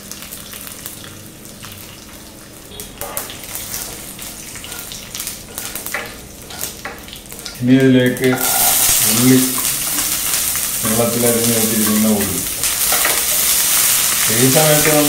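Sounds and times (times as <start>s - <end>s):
seeds sizzling in hot oil: 0.0s - 15.0s
spatula scraping pan: 3.0s - 7.6s, 8.3s - 10.6s.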